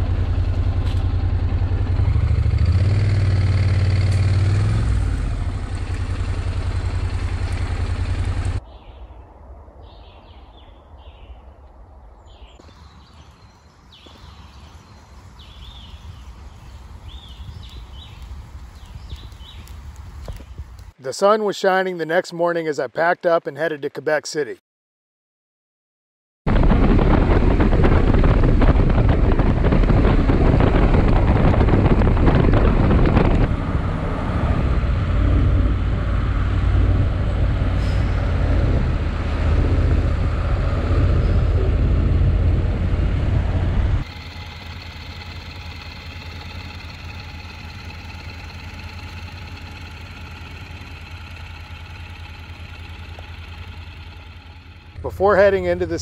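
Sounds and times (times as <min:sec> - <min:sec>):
motorcycle engine running: 0:00.0 - 0:08.6, 0:13.9 - 0:21.0, 0:26.5 - 0:56.0
town traffic: 0:00.0 - 0:21.7, 0:26.5 - 0:56.0
wind noise: 0:12.9 - 0:20.9, 0:26.5 - 0:44.1.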